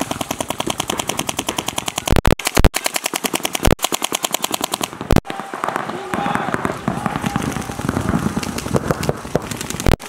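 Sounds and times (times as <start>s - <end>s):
paintball markers firing: 0.0s - 10.0s.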